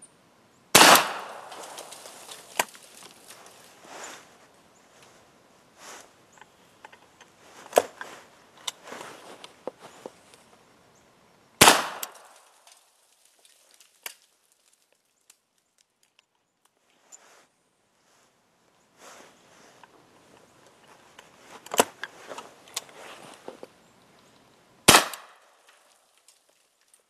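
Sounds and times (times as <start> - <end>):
rifle shot with echo: 0.7 - 1.8, 11.6 - 12.3, 24.9 - 25.5
rustling: 1.0 - 10.7, 12.0 - 24.6.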